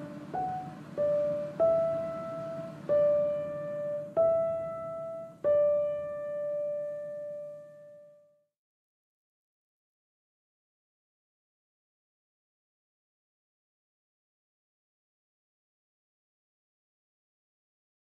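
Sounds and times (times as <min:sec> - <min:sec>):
slow solo piano melody: 0:00.0 - 0:08.4.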